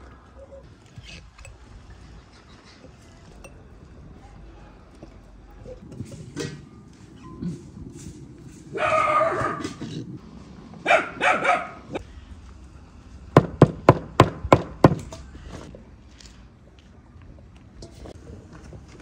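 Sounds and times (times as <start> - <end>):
dog barking and yelping: 8.7 - 9.8, 10.9 - 12.0.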